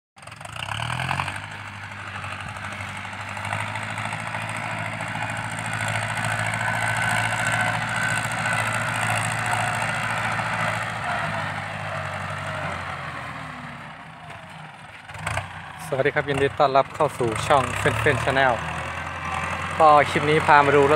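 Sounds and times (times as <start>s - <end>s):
tractor diesel engine running: 0.2s - 20.9s.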